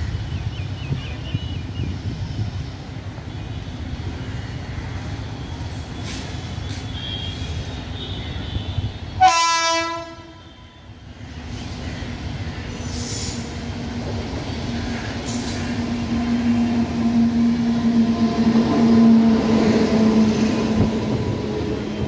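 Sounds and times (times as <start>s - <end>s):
train rumble: 0.0s - 22.0s
train horn blast: 6.8s - 10.9s.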